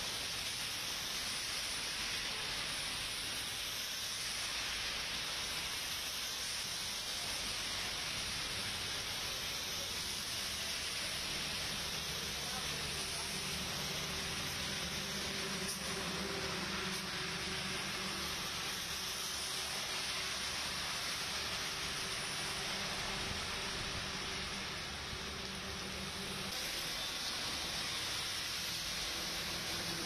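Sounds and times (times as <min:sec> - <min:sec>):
heavy rain on wet road: 0:00.0 - 0:30.0.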